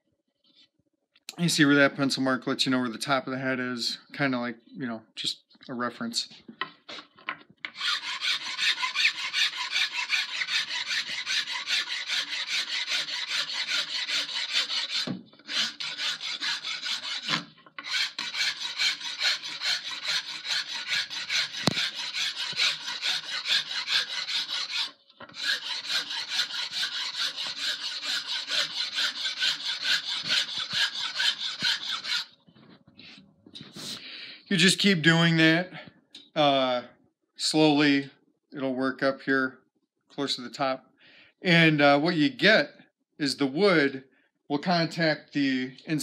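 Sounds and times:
hand file rasping on wood: 0:07.7 - 0:32.3.

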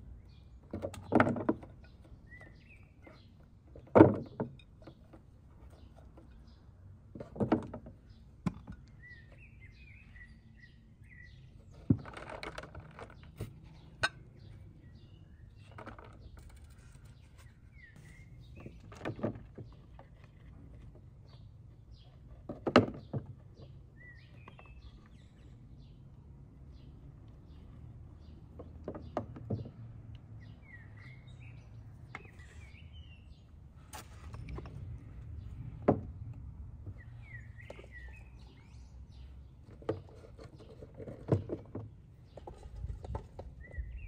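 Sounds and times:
small birds chirping: 0:00.0 - 0:44.0.

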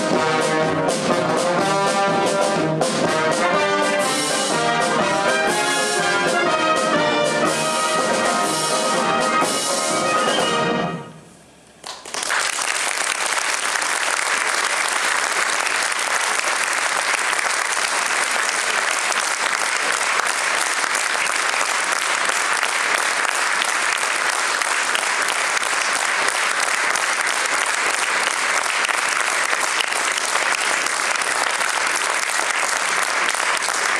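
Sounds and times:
audience applauding: 0:11.8 - 0:33.9.

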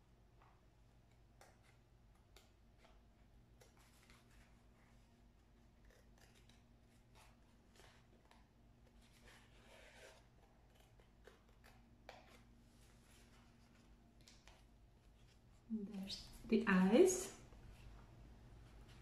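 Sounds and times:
scissors cutting paper plate: 0:05.8 - 0:08.4.

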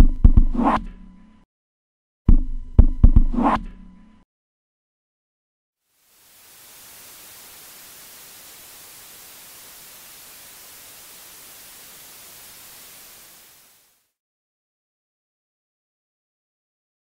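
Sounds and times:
steady white noise hiss: 0:05.8 - 0:14.2.

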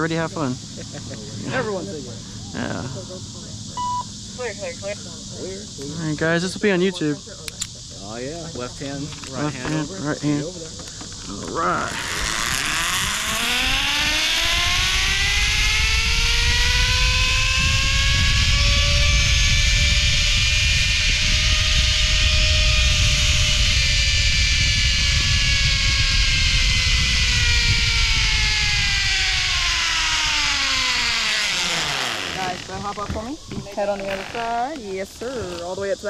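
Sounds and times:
wind rushing over the microphone: 0:00.0 - 0:36.0
zip line pulleys whining on cable: 0:08.8 - 0:35.7.

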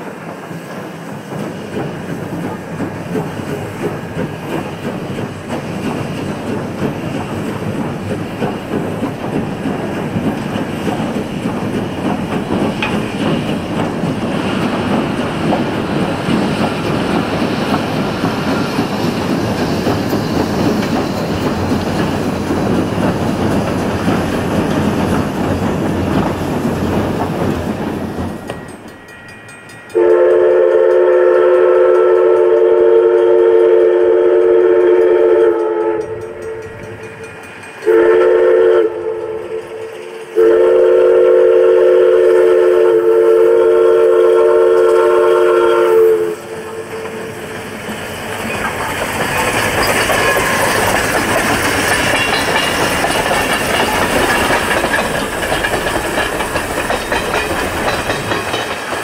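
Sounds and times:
train rolling over bridge: 0:00.0 - 0:59.0
steam whistle blasts: 0:29.9 - 0:36.6, 0:37.8 - 0:39.8, 0:40.4 - 0:47.0.

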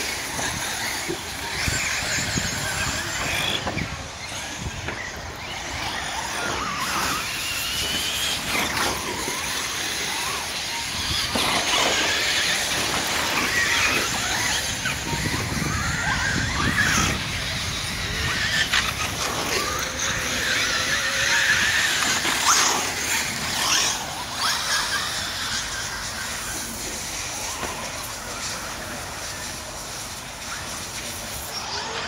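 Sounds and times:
rc car motors whining: 0:00.0 - 0:32.0.

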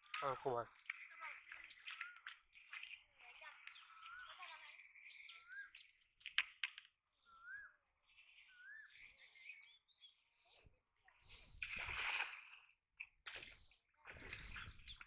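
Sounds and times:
bird whistling calls: 0:03.7 - 0:05.8, 0:07.2 - 0:07.8, 0:08.4 - 0:10.1
net splashing onto water: 0:11.2 - 0:12.7.

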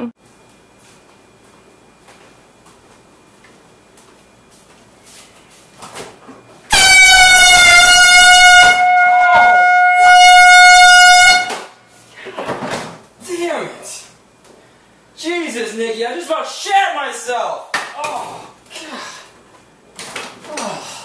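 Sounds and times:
air horn blaring: 0:06.7 - 0:11.8.

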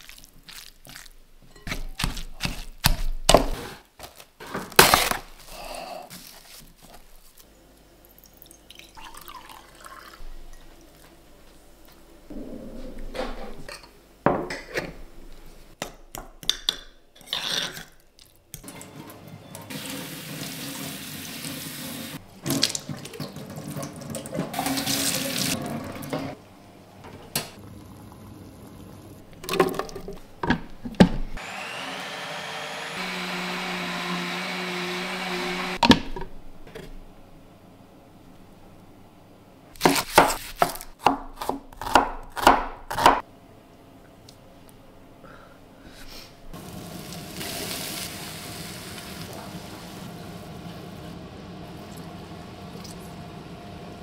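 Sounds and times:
blender running: 0:31.4 - 0:35.8.

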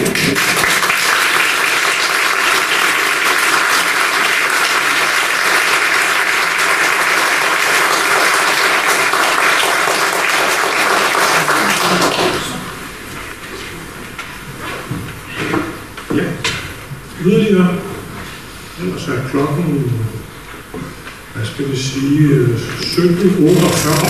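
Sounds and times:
audience applauding: 0:00.0 - 0:12.7, 0:23.5 - 0:24.0.

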